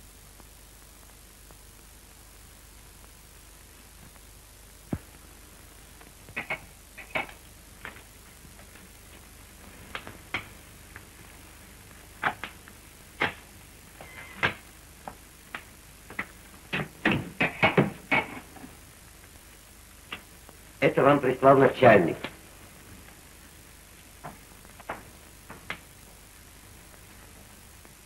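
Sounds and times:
film soundtrack hiss: 0.0s - 28.0s.

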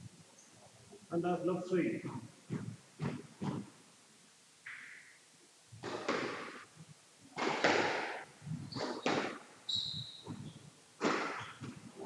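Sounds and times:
shoes squeaking on court floor: 2.0s - 3.7s, 7.4s - 12.0s
squash ball knocking: 2.0s - 3.7s, 5.8s - 6.7s, 7.3s - 9.5s, 10.2s - 12.0s.

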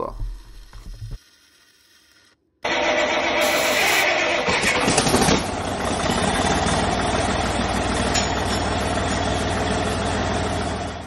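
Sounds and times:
engine idling: 2.6s - 11.0s.

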